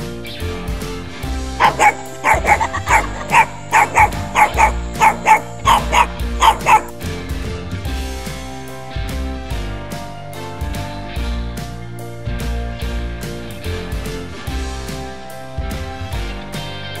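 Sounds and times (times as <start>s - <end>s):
puppy yipping: 1.6s - 7.0s.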